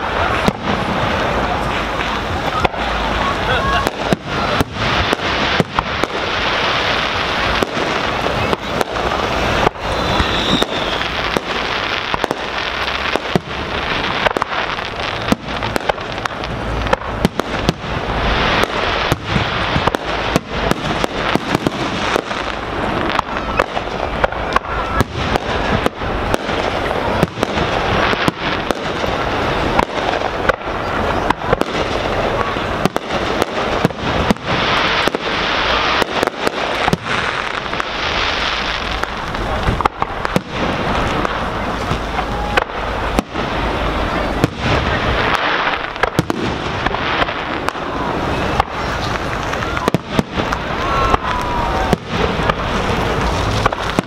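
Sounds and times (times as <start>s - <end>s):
firework shells bursting: 3.7s - 38.0s.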